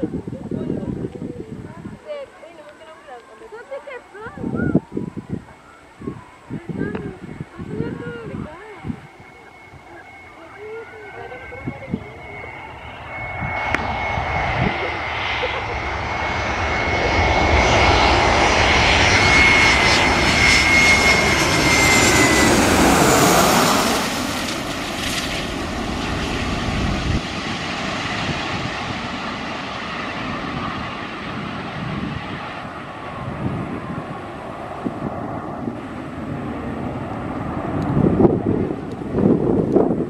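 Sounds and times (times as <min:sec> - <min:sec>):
faint jet engine noise: 0:00.0 - 0:40.0
jet airliner passing low: 0:00.0 - 0:40.0.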